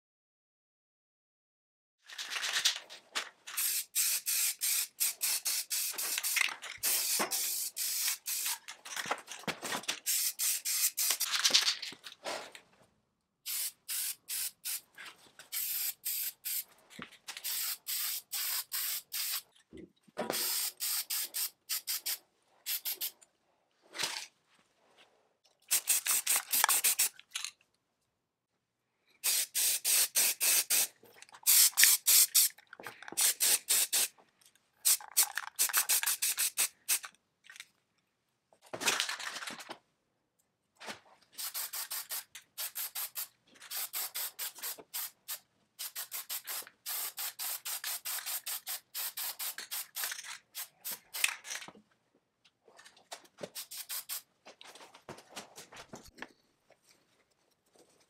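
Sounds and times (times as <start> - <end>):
spray paint hissing: 3.6 - 8.6, 10.0 - 11.3, 13.5 - 14.9, 15.5 - 16.7, 17.4 - 19.4, 20.3 - 23.2, 25.7 - 27.1, 29.2 - 32.6, 33.2 - 34.1, 34.8 - 37.0, 41.4 - 51.3, 53.6 - 54.3.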